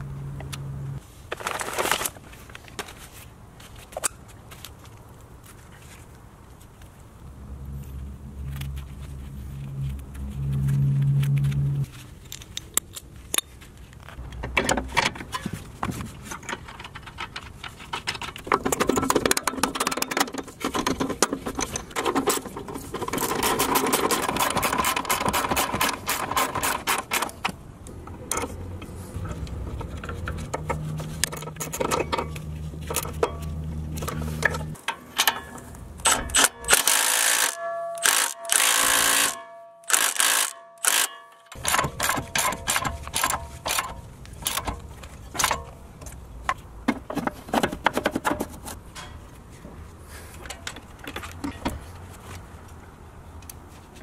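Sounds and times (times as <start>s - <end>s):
metal parts clinking: 29.9s - 44.7s
socket ratchet clicking: 36.0s - 43.9s.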